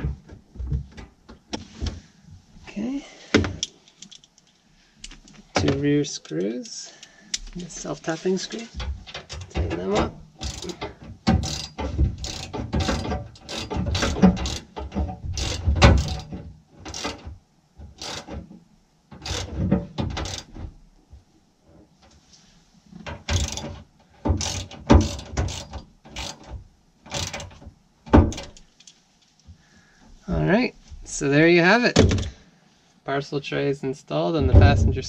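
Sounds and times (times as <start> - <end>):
hand ratchet clicking: 10.4 - 17.3, 18.0 - 18.4, 19.2 - 20.5, 23.3 - 27.6, 28.3 - 29.0.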